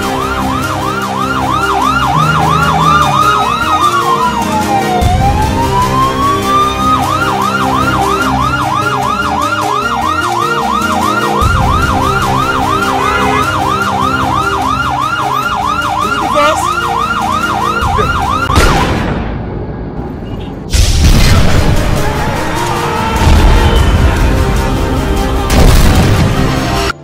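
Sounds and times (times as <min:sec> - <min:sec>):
emergency vehicle siren: 0:00.0 - 0:19.0.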